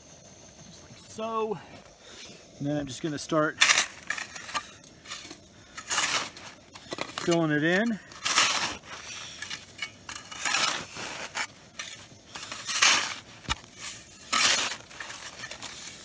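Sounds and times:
snow shovel scooping snow: 3.5s - 16.0s.

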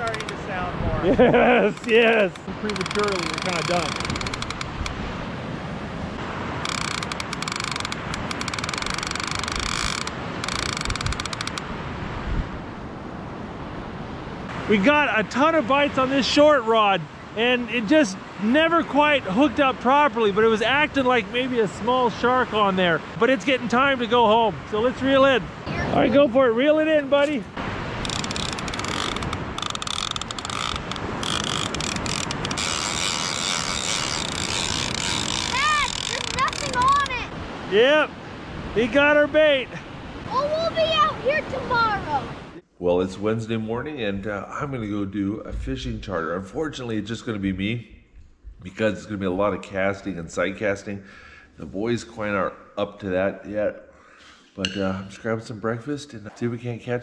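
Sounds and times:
fishing reel clicker ratcheting: 0.0s - 0.4s, 2.7s - 4.9s, 6.6s - 11.6s, 28.0s - 36.8s.

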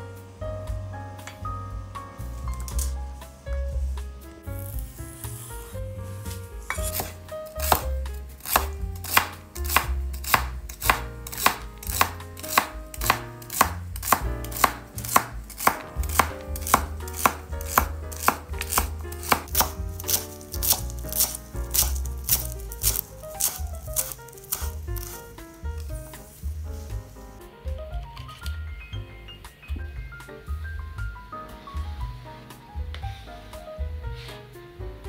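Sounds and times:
background music: 0.0s - 35.0s
knife slicing on wooden board: 4.6s - 26.9s.

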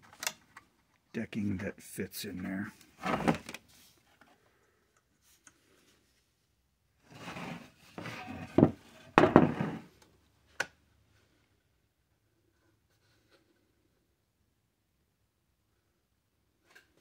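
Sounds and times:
plastic parts rubbing and scraping: 3.0s - 4.4s, 7.0s - 10.0s.

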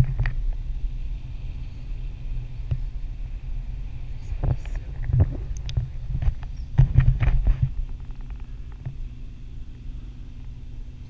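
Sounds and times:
wind rumbling on microphone: 0.0s - 11.0s
knocks and rubbing on camera: 4.4s - 9.0s.

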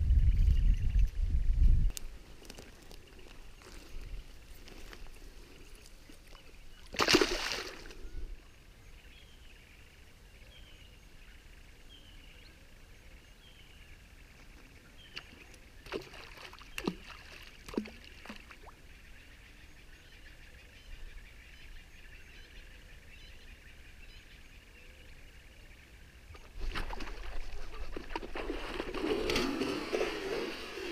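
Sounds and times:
fish splashing into water: 6.8s - 8.0s, 26.4s - 29.1s.

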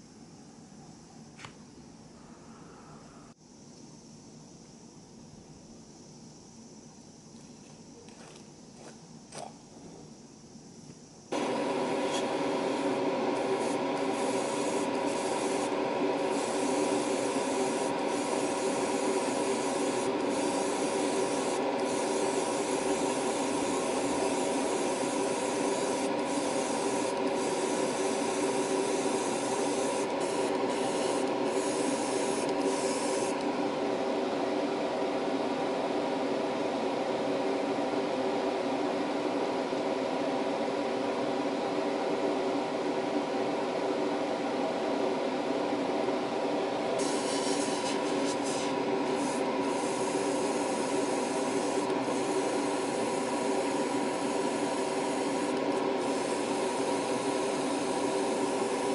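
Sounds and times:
airbrush hissing: 11.3s - 33.5s, 47.0s - 58.9s.

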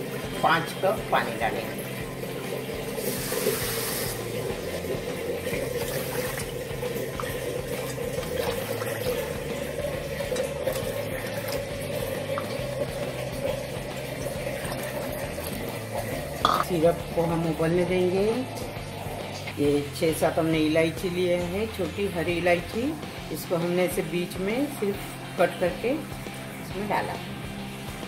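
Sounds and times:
water pouring and splashing: 0.0s - 20.4s.

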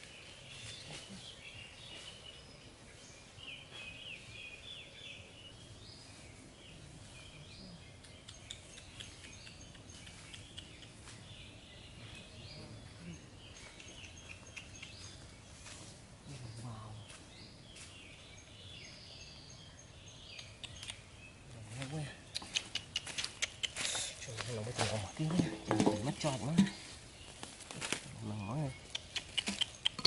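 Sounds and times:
birds chirping: 0.0s - 30.0s
footsteps on dry leaves: 23.8s - 28.2s.

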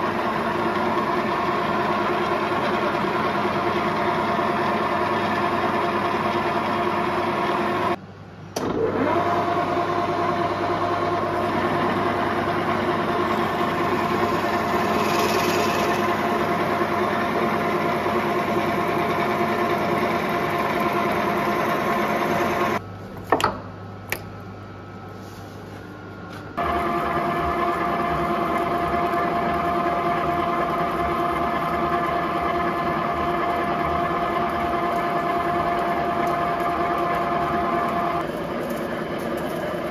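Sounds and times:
milling machine drilling steel: 12.7s - 22.8s.

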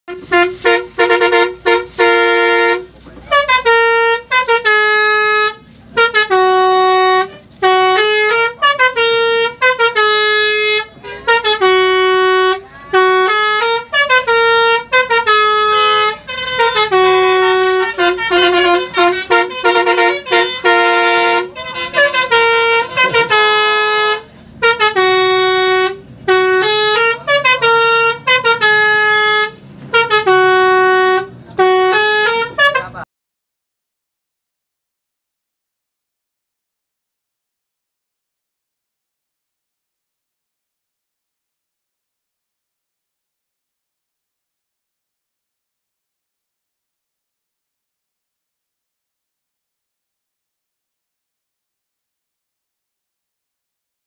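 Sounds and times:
multi-tone bus horn melody: 0.1s - 33.1s.

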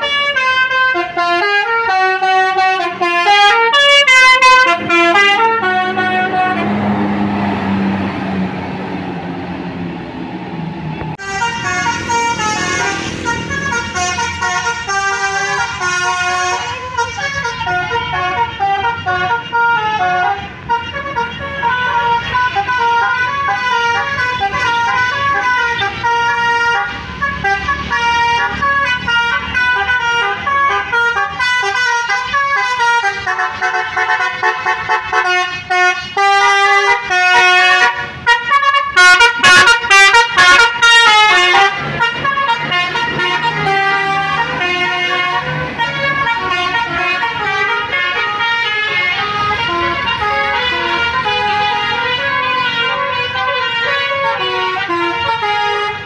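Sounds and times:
air horns playing a tune: 0.0s - 8.3s, 11.2s - 56.0s
bus engine noise: 0.0s - 56.0s.

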